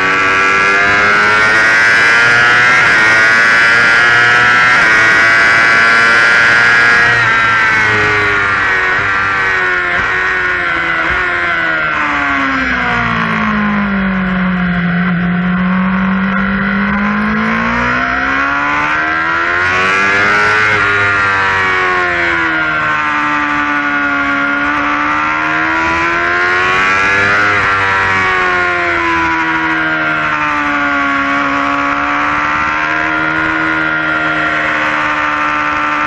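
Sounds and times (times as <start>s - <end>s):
motorcycle engine at speed: 0.0s - 36.0s.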